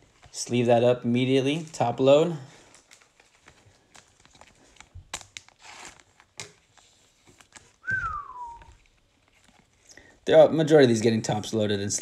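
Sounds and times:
plastic sleeve crinkling and clicking: 0:01.3 - 0:10.2
short falling whistle: 0:07.8 - 0:08.7.

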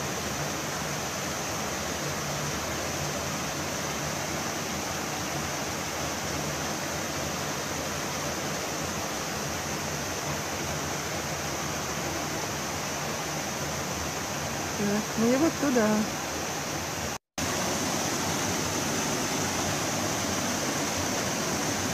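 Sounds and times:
creek rushing over boulders: 0:00.0 - 0:21.9.

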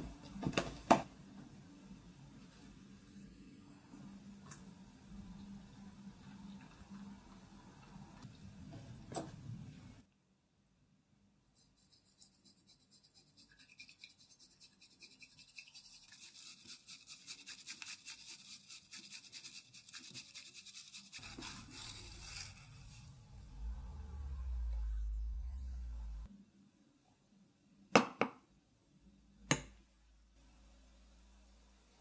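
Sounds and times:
bamboo whisk swishing in a bowl: 0:11.6 - 0:23.8
low hum: 0:21.2 - 0:26.6.

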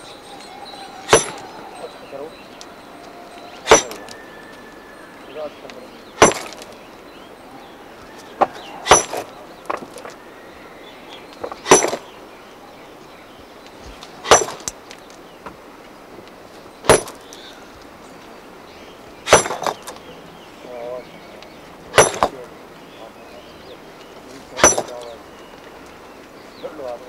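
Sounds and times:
hammer striking rock: 0:01.1 - 0:01.5, 0:03.6 - 0:04.2, 0:06.2 - 0:06.8, 0:08.4 - 0:10.2, 0:11.4 - 0:12.1, 0:14.2 - 0:14.8, 0:16.9 - 0:17.3, 0:19.3 - 0:20.0, 0:21.9 - 0:22.4, 0:24.6 - 0:25.1.

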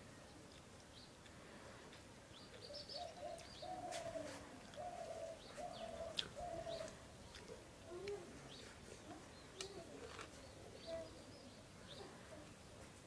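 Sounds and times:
small birds chirping: 0:00.0 - 0:13.0
dove cooing: 0:02.6 - 0:12.4.

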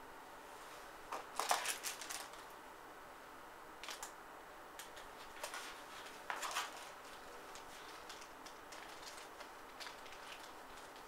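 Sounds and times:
plastic packaging crinkling: 0:01.1 - 0:02.5, 0:03.8 - 0:04.2, 0:04.8 - 0:11.0.

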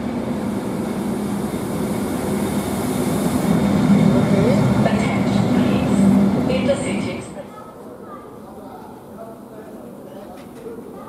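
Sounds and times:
train wheels rumbling on rail: 0:00.0 - 0:07.5.

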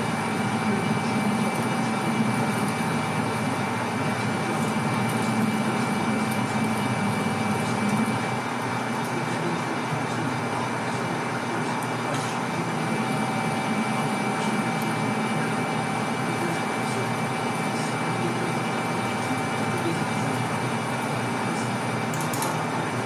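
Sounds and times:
low cutting whine: 0:00.0 - 0:23.0
metal lathe drone: 0:00.0 - 0:23.0.

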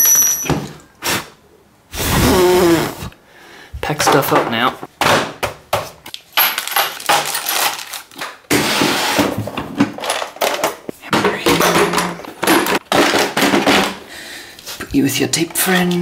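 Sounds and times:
tools clattering in plastic case: 0:06.4 - 0:08.3, 0:09.5 - 0:14.0.

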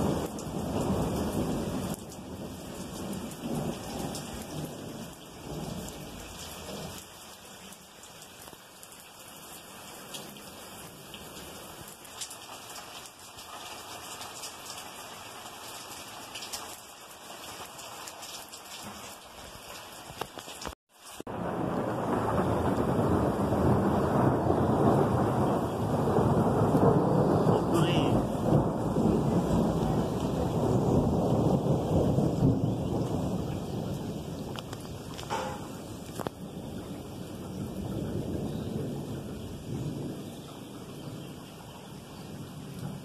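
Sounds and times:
thunder rumbling: 0:00.0 - 0:07.0, 0:21.3 - 0:43.0
heavy rain: 0:00.0 - 0:43.0.

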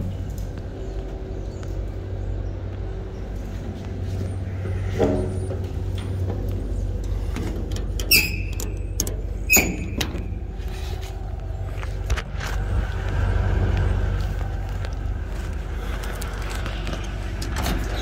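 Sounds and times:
diesel truck engine idling: 0:00.0 - 0:18.0
metal door latch clacking: 0:07.4 - 0:10.4.

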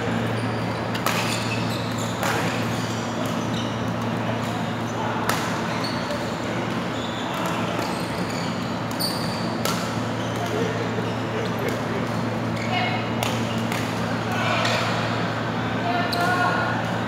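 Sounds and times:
sports hall hum: 0:00.0 - 0:17.0.

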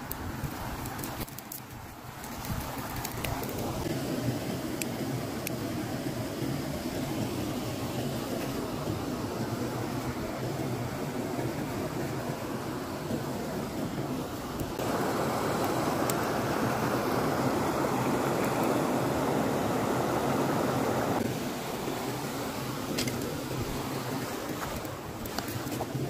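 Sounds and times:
creek water rushing: 0:00.0 - 0:26.0.

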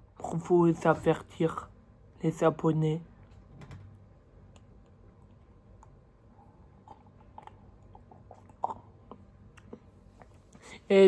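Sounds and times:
mouth clicks and swallows: 0:04.5 - 0:10.6
person sipping coffee: 0:04.9 - 0:10.6.

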